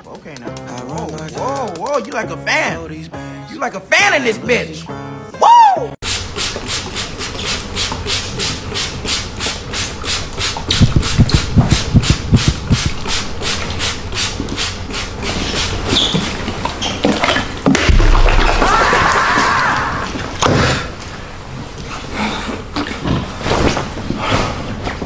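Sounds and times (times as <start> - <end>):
spray bottle squirting: 6.1 - 16.4
low thumps: 17.8 - 19.2
water pouring over head: 17.9 - 20.0.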